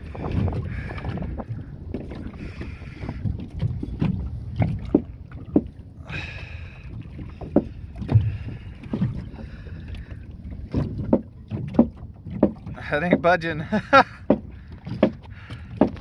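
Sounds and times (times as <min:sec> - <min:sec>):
wind on the microphone: 0:00.0 - 0:04.9
knocks against a boat hull: 0:03.6 - 0:05.8, 0:07.4 - 0:09.3, 0:10.7 - 0:12.8, 0:13.9 - 0:16.0.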